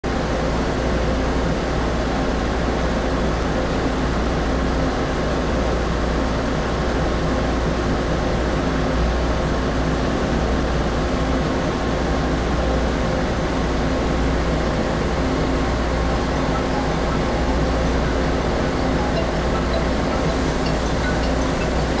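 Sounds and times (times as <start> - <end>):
faint high whine: 14.6 - 22.0.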